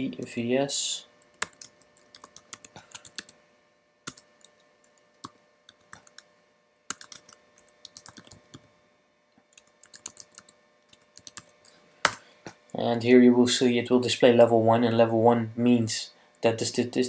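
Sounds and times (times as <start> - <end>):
typing on computer keyboard: 1.4 - 3.3, 6.9 - 8.6, 9.6 - 11.5.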